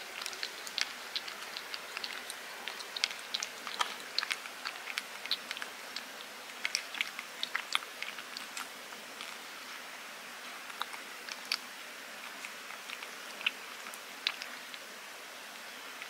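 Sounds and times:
cat licking wet clicks: 0:00.2 - 0:08.7.

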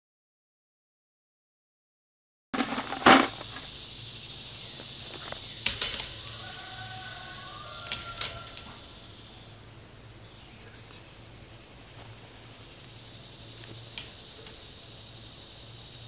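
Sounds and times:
high insect drone: 0:02.6 - 0:16.0.

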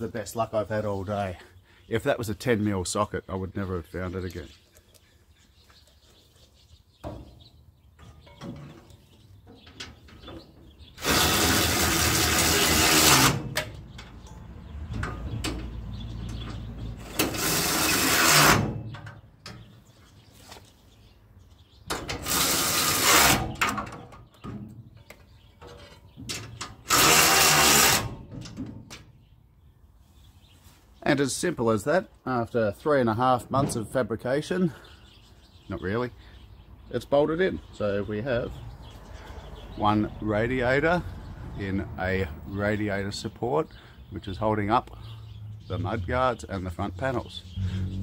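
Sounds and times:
power tool driving bolts: 0:11.0 - 0:14.2, 0:17.0 - 0:19.2, 0:21.9 - 0:24.0, 0:26.3 - 0:28.7.

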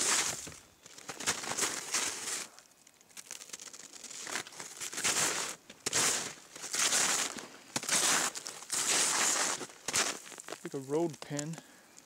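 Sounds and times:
snowshoes crunching through snow: 0:00.0 - 0:02.6, 0:03.8 - 0:11.5.

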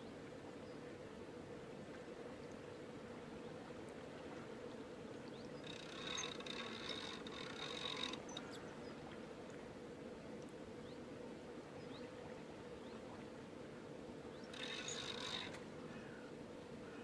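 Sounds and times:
fishing reel clicking whirr: 0:05.6 - 0:08.6, 0:14.4 - 0:15.7.

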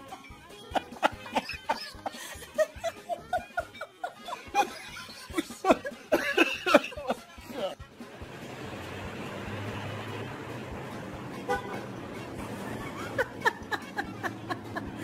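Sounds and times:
person giggling and snickering: 0:00.0 - 0:07.8, 0:12.6 - 0:15.0.

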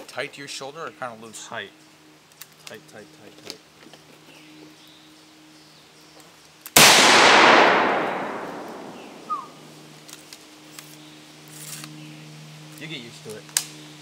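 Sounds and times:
rifle shot with echo: 0:06.8 - 0:09.7.

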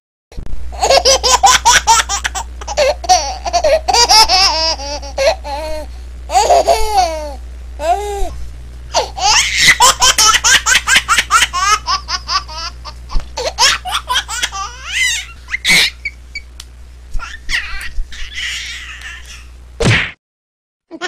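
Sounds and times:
high-pitched laughter: 0:09.2 - 0:12.8, 0:13.4 - 0:16.2.

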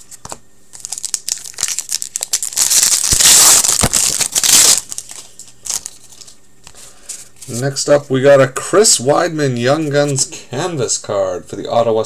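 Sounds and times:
card pack wrapper crinkling: 0:00.2 - 0:06.4
wrapper tearing open: 0:00.7 - 0:06.4.

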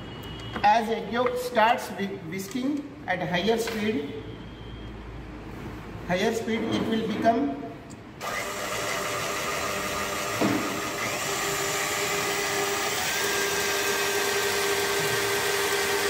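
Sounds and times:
stand mixer motor whine: 0:08.2 - 0:16.0.

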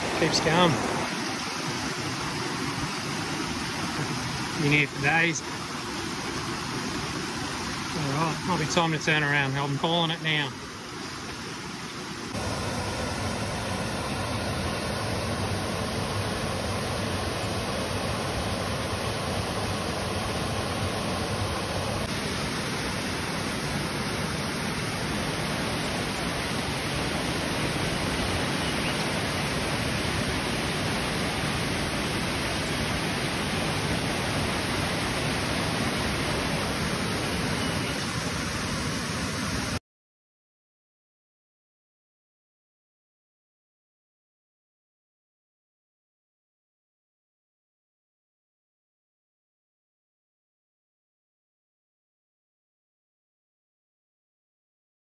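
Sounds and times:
creek cascade rushing into pool: 0:00.0 - 0:39.8.

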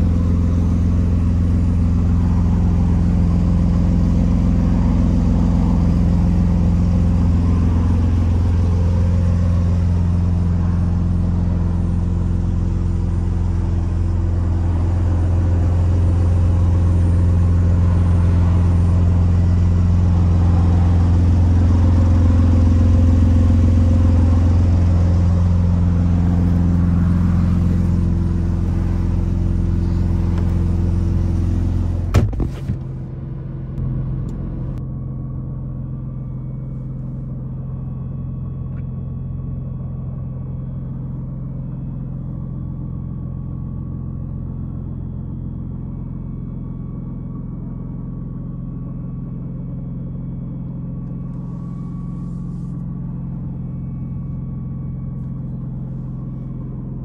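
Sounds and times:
car engine idling: 0:00.0 - 0:57.0
sharp thud: 0:32.1 - 0:33.0.

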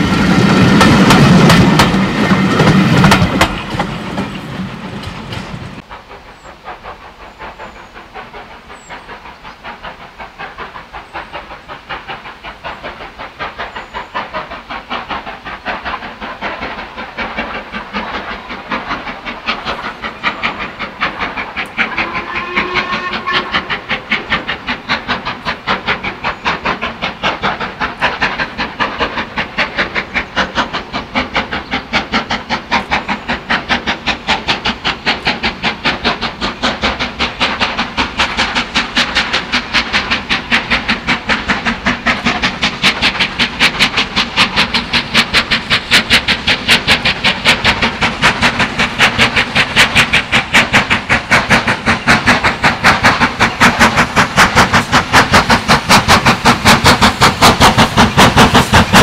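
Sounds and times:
steam locomotive exhaust beats: 0:00.0 - 0:59.0
steam whistle: 0:21.9 - 0:23.9.

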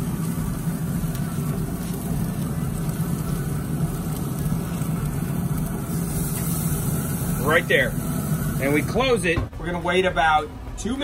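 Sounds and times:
pellet fire burning: 0:00.0 - 0:10.0
grill fan humming: 0:00.0 - 0:11.0.

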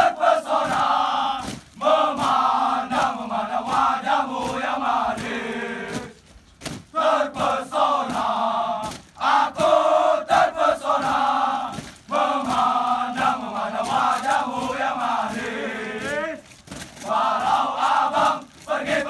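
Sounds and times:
men chanting and shouting in unison: 0:00.0 - 0:06.2, 0:06.9 - 0:19.0.

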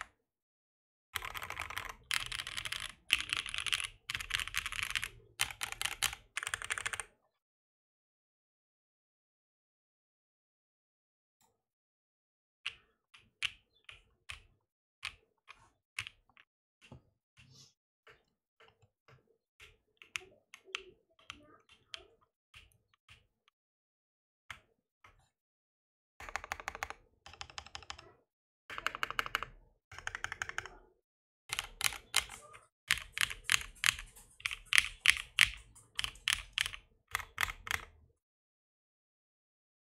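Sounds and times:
mechanical keyboard typing: 0:01.2 - 0:07.1, 0:26.2 - 0:28.1, 0:28.7 - 0:30.8, 0:31.5 - 0:38.0.

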